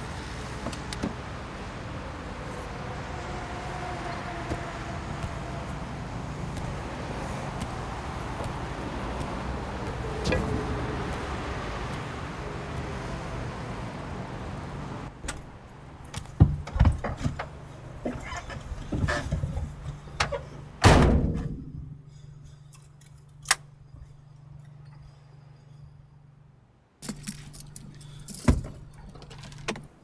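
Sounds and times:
heavy door slamming shut: 20.8s - 21.5s.

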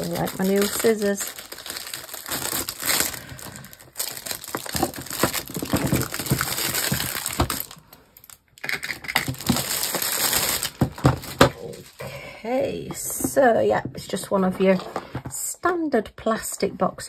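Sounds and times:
plastic bag crinkling: 0.0s - 12.2s.

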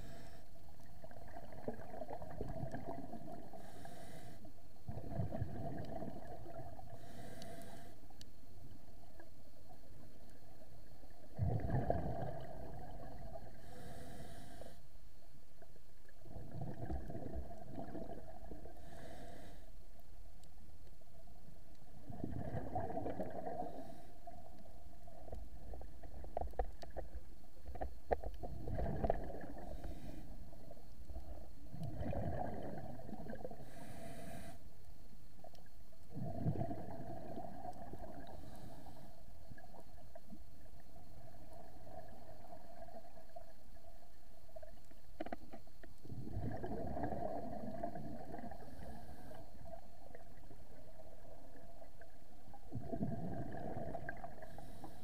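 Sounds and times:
underwater bubble gushes: 0.8s - 3.6s, 4.8s - 6.9s, 11.1s - 13.6s, 16.1s - 18.7s, 22.0s - 33.8s, 36.1s - 38.4s, 39.4s - 54.7s.

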